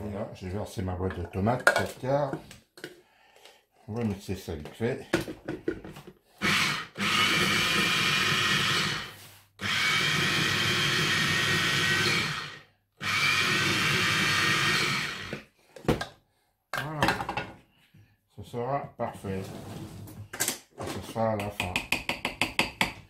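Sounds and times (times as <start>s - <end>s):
electric mini-chopper blending: 6.4s - 15.4s.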